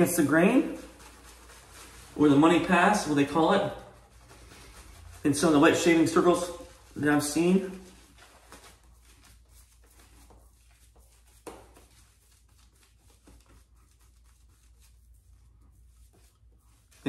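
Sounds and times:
shaving brush swishing on face: 0:00.0 - 0:17.0.

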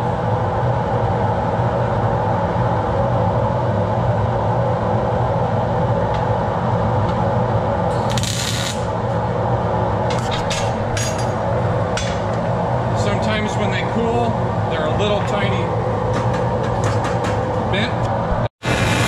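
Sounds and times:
machine hum: 0:00.0 - 0:19.0
welding hiss: 0:07.9 - 0:08.9, 0:18.6 - 0:19.0.

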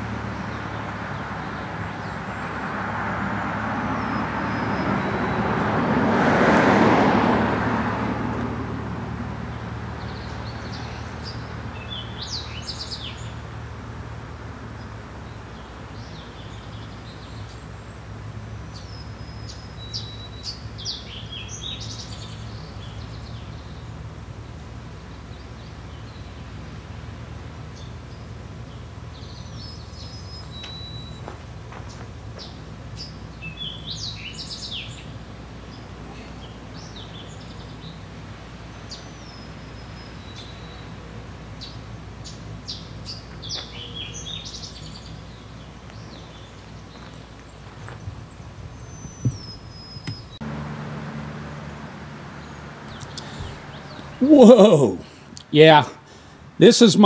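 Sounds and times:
birds chirping: 0:00.0 - 0:07.0, 0:08.2 - 0:57.0
vehicle passing: 0:00.0 - 0:16.5, 0:50.3 - 0:57.0.

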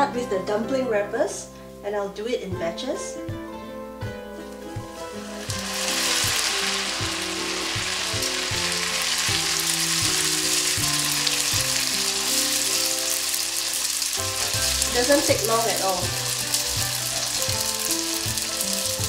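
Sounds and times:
deep-frying sizzle in oil: 0:04.5 - 0:19.0.

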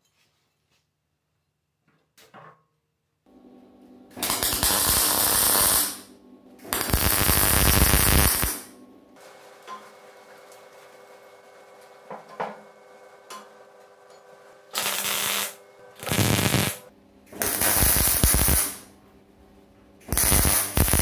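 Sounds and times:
arc welding crackling and hissing: 0:04.2 - 0:08.7, 0:14.7 - 0:18.9, 0:20.1 - 0:21.0.

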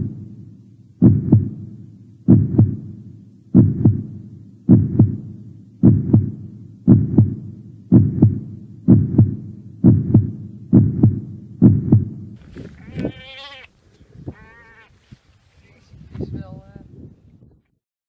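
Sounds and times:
heartbeat double thump: 0:00.0 - 0:00.3, 0:01.0 - 0:13.2.

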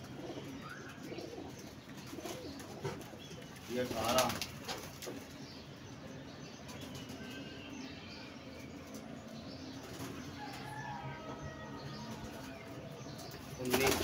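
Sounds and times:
pigeons cooing: 0:00.0 - 0:04.4.

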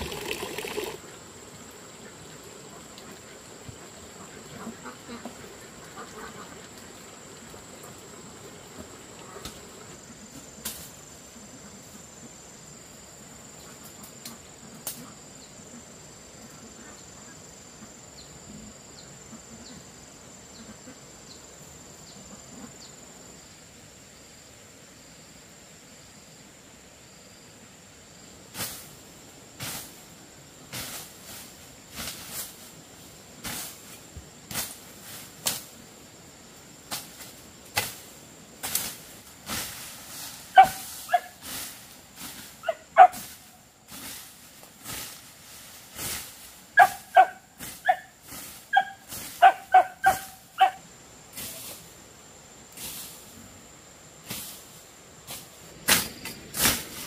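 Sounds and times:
pulsing insect chirps: 0:00.0 - 0:02.1
insects droning: 0:00.0 - 0:57.0.

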